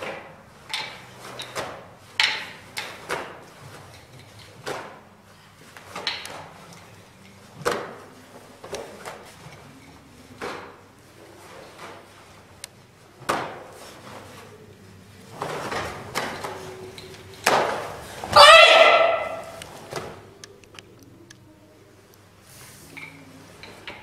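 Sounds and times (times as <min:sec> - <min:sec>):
nunchaku swishing and knocking: 0:00.0 - 0:12.6.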